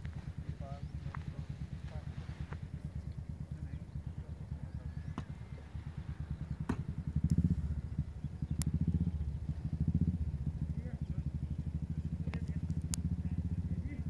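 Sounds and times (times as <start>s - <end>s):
engine running: 0.0s - 14.0s
faint sharp clicks: 8.5s - 8.8s, 12.2s - 13.1s.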